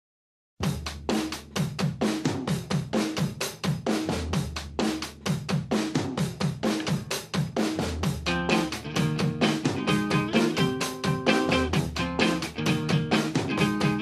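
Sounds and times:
fast drum-kit beat: 0.6 - 14.0
low bass: 11.5 - 13.1.

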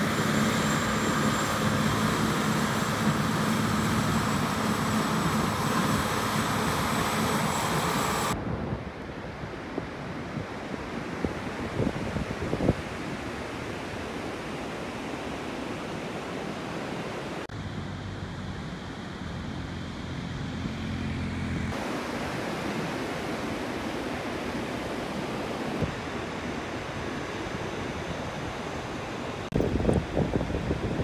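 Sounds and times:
tractor engine droning: 0.0 - 8.4, 17.5 - 21.8
wind buffeting microphone: 0.0 - 14.0, 29.4 - 31.0.

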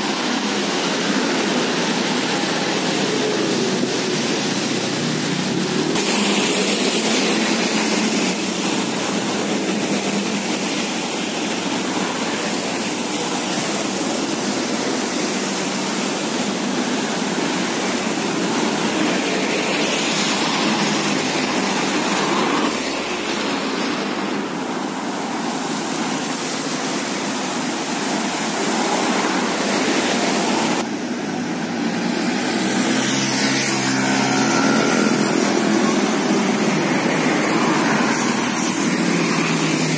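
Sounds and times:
tyres hissing on wet road: 0.0 - 39.9
passing vehicle engines: 30.2 - 39.9.

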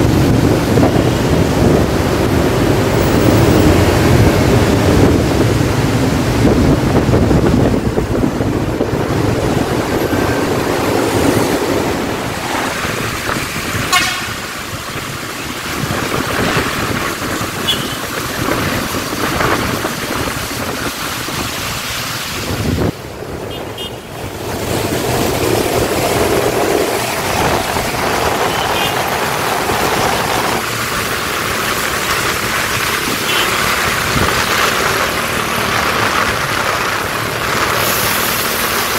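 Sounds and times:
bus pulling away: 0.0 - 23.4, 24.2 - 38.9
heavy rain: 0.0 - 38.9
road traffic: 0.0 - 38.9
short vehicle horn toots: 13.9 - 14.4.

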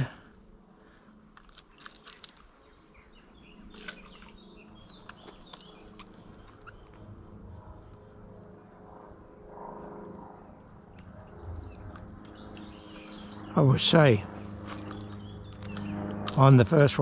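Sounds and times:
small birds chirping: 0.0 - 17.0
sharp clicks: 14.8 - 17.0.

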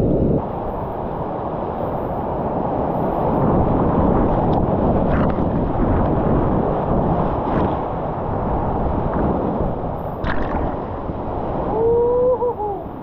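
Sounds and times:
sharp splash: 10.2 - 11.2
person whooping: 11.7 - 13.0.

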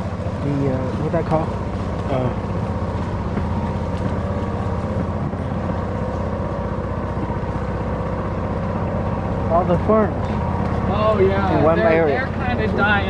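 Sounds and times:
golf cart motor humming: 0.0 - 13.0.

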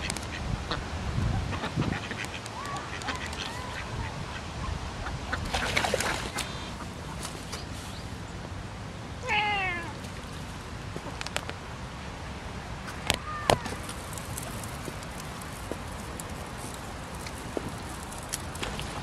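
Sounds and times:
cat meowing: 9.2 - 10.0.

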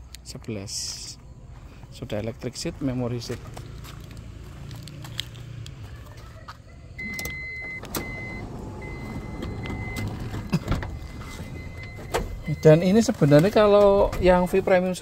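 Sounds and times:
warning buzzer long beeps: 7.0 - 13.0
sliding door motor running: 7.8 - 11.8.

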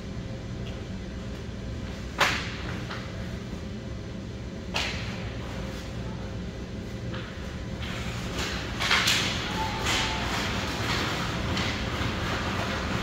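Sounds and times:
steady low hum: 0.0 - 13.0
hockey stick hitting puck: 8.4 - 12.4.

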